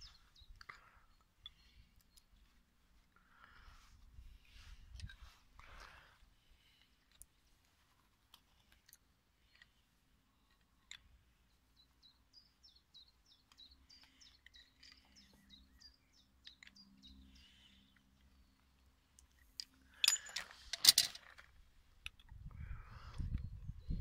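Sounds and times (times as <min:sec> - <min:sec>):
small bird chirping: 0:00.0 - 0:02.6, 0:10.4 - 0:18.8.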